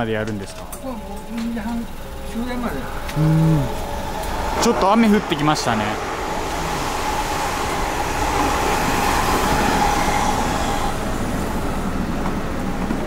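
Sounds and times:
steady whine: 0.0s - 13.0s
vehicle passing by: 2.2s - 12.9s.

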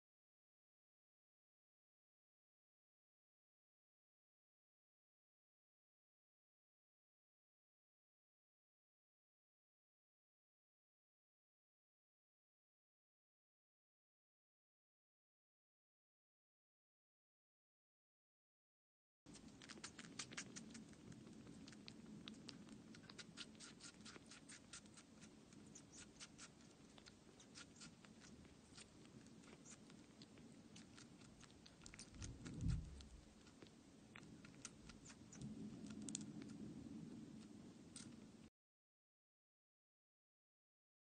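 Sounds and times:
kitten lapping wet clicks: 19.3s - 36.6s
low hum: 28.2s - 38.5s.

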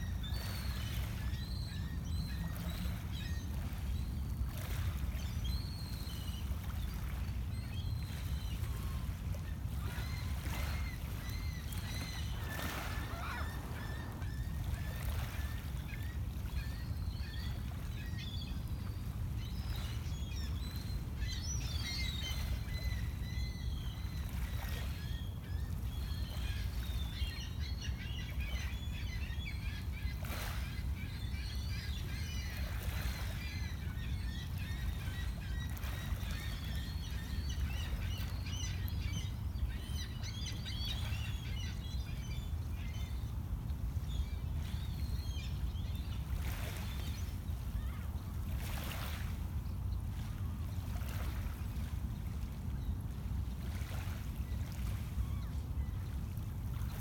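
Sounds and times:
birds chirping: 10.3s - 15.6s.

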